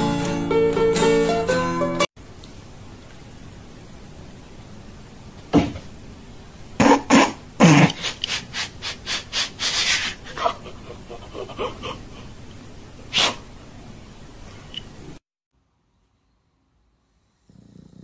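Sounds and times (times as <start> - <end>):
person laughing: 7.6 - 12.6.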